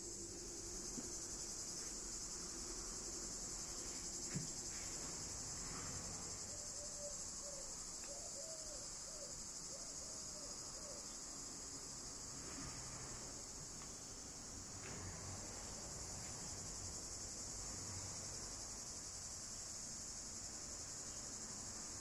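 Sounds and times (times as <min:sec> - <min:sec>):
insects chorus: 0:00.0 - 0:22.0
soft knock: 0:04.3 - 0:04.6.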